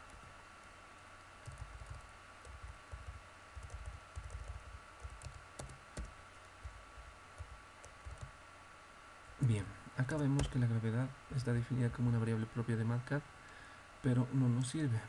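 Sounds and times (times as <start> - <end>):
typing on computer keyboard: 1.4 - 6.8, 7.4 - 8.3.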